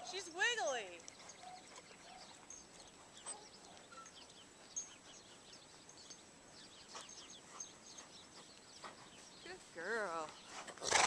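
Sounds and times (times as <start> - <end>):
faint high chirps and ticks: 0.0 - 10.8.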